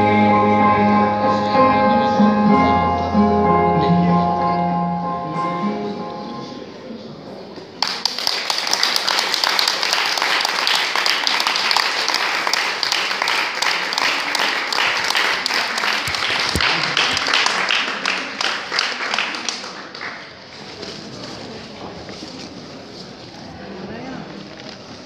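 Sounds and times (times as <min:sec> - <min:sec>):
audience applauding: 0:07.8 - 0:20.5.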